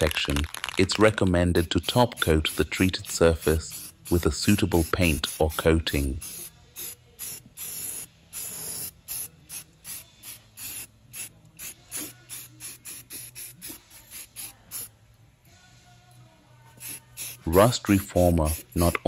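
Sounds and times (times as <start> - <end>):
aerosol can spraying bursts: 1.5 - 14.9, 16.8 - 19.0.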